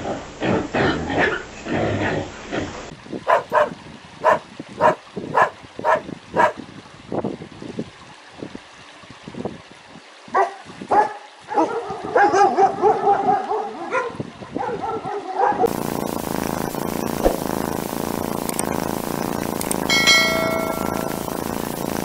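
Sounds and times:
steady even noise: 15.7 - 22.0.

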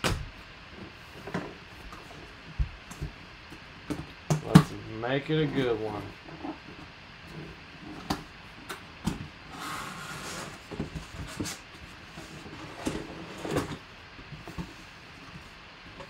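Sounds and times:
cardboard flaps scraping and rustling: 9.3 - 15.6.

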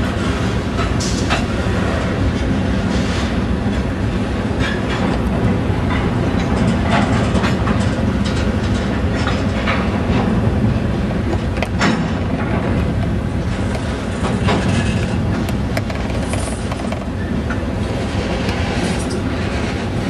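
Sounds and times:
train wheels rumbling on rails: 0.0 - 20.0
wheels and couplings clanking: 0.4 - 20.0.

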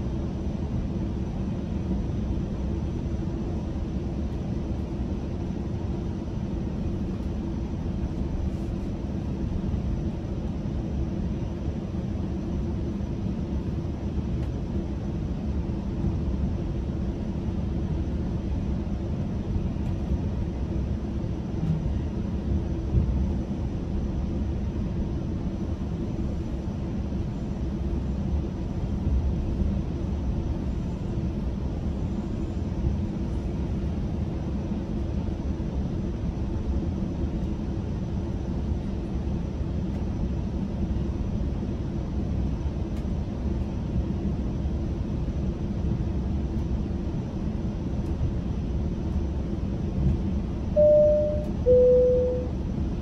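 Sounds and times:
faint continuous hum: 0.0 - 53.0
train wheels rumbling on rail: 46.5 - 50.7.

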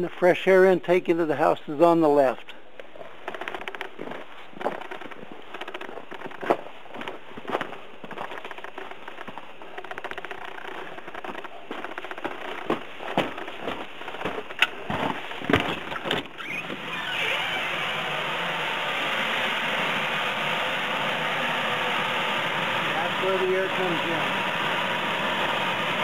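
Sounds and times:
knocks and crackles: 2.8 - 16.8.

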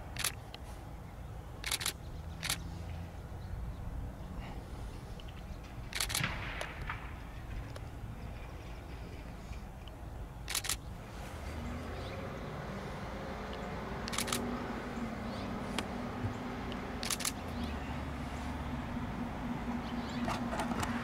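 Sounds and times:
low outdoor rumble: 0.0 - 21.0
camera shutter clicks: 0.1 - 0.4, 1.6 - 2.6, 5.9 - 6.7, 10.4 - 10.9, 13.5 - 14.5, 17.0 - 17.5.

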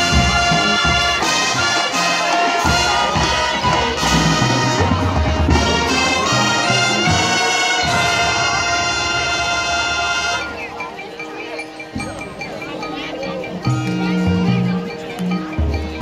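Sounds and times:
marching band brass chords: 0.0 - 11.4.

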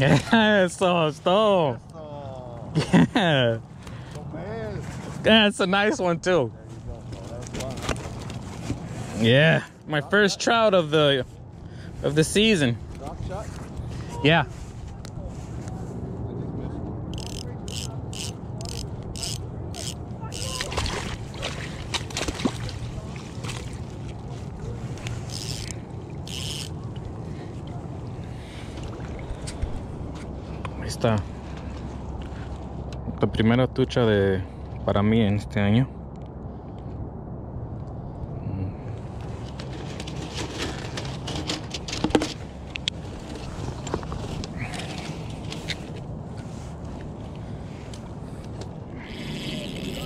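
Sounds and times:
fishing gear clicks and knocks: 7.0 - 9.0, 17.1 - 27.8, 39.2 - 47.1
steady low rumble: 10.8 - 49.1
water sloshing: 19.8 - 30.6
landing net rustling: 20.3 - 26.8, 39.4 - 46.8.

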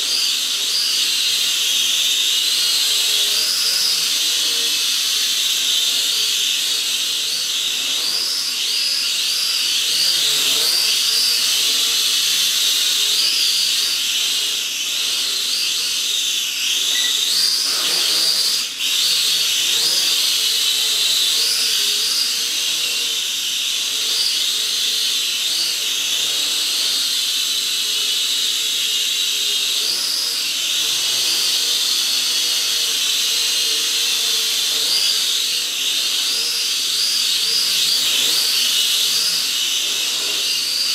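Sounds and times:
quadcopter motors whining: 0.0 - 40.9.

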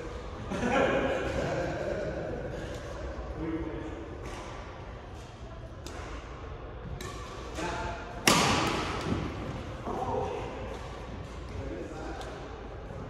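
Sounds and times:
rackets striking shuttlecock: 4.2 - 9.7.

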